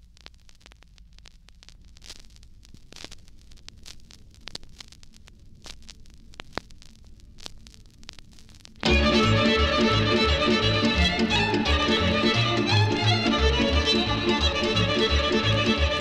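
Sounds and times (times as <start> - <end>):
vinyl surface hiss and crackle: 0.0 - 16.0.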